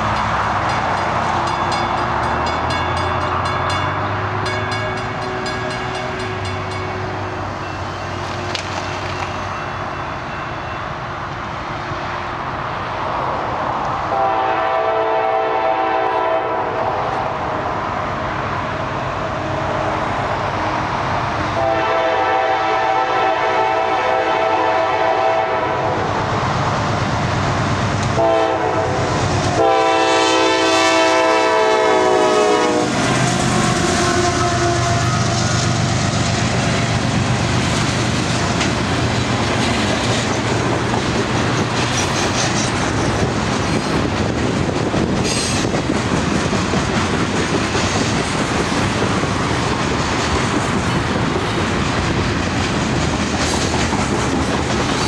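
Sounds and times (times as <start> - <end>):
train rumbling: 0.0 - 55.0
locomotive air horn blasts: 14.1 - 17.0, 21.6 - 26.1, 28.1 - 35.7.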